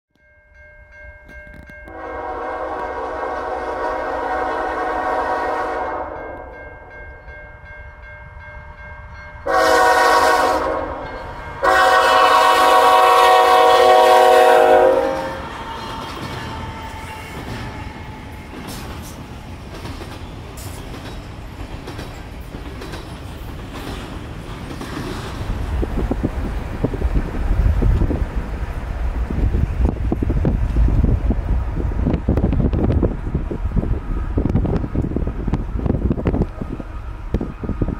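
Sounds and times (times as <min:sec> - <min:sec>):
train rumbling and clattering past: 0:01.4 - 0:37.9
locomotive horn blasts: 0:01.9 - 0:06.8, 0:09.4 - 0:17.4.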